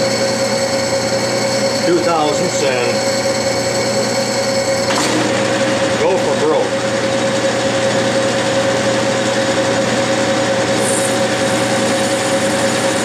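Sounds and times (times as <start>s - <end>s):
lathe tool cutting brass: 0.0s - 6.7s, 10.6s - 13.0s
metal lathe running: 0.0s - 13.0s.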